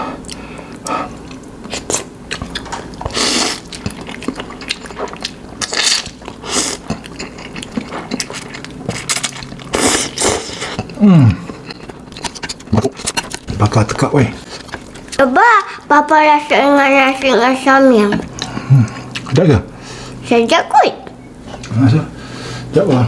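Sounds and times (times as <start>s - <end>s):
wet chewing and lip clicks: 0.2s - 13.5s, 18.0s - 19.4s
person slurping noodles: 3.1s - 3.7s, 9.7s - 11.5s.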